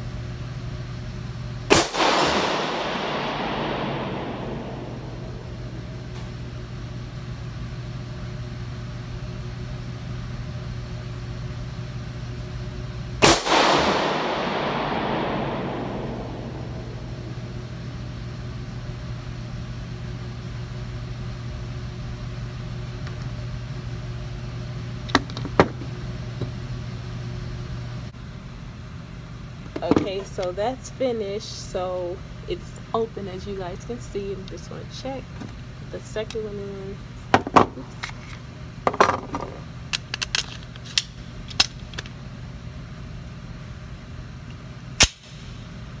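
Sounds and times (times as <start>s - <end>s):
steady low hum: 0.0s - 46.0s
pistol shot echoing: 1.7s - 6.1s, 13.2s - 17.7s.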